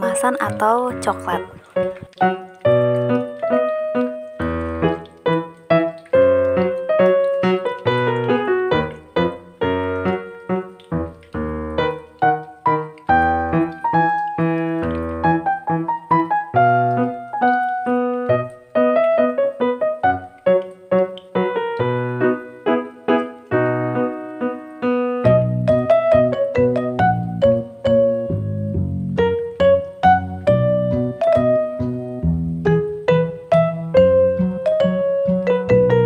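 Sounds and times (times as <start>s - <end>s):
piano music: 0.0s - 36.0s.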